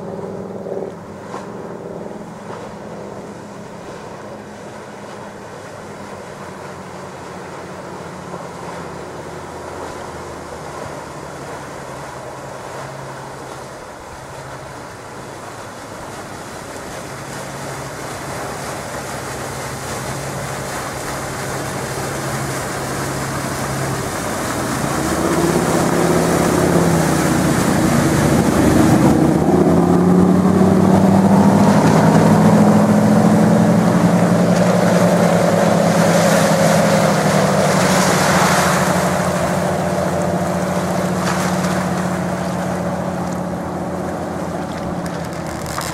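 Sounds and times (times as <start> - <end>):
boat wake rushing: 0.0 - 45.9
motor boat engine drone: 0.0 - 45.9.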